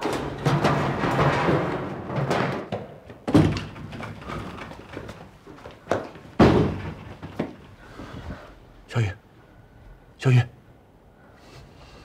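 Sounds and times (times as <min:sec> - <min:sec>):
door banging open: 0:00.0 - 0:05.1, 0:06.2 - 0:07.6
hurried footsteps on stairs: 0:02.1 - 0:08.2
thump: 0:06.4 - 0:07.6.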